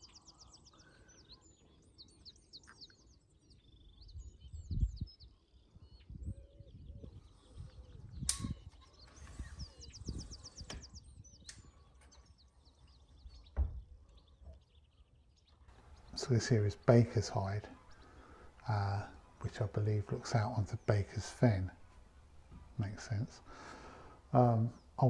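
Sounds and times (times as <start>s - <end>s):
songbirds chirping and trilling: 0.0s - 25.0s
sharp click: 8.3s - 8.6s.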